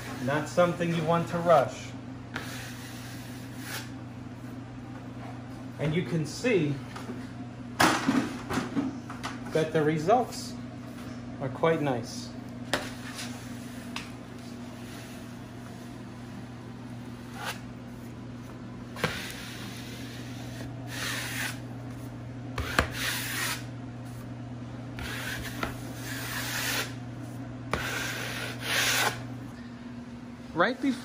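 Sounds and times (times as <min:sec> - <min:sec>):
steady low hum: 0:00.0 - 0:31.0
tool rubbing on wallpaper: 0:02.4 - 0:04.0, 0:19.0 - 0:22.0, 0:22.6 - 0:23.7, 0:25.0 - 0:27.0, 0:27.7 - 0:29.2.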